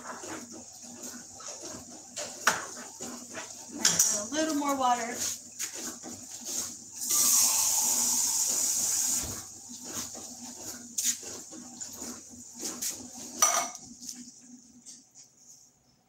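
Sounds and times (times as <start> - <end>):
tap water filling a can: 7.0 - 9.4.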